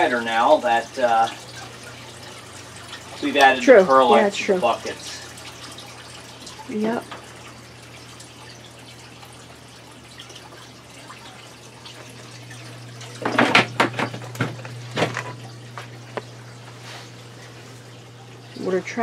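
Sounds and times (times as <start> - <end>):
water trickling into tub: 0.0 - 19.0
sharp knocks and clatters: 13.2 - 15.4.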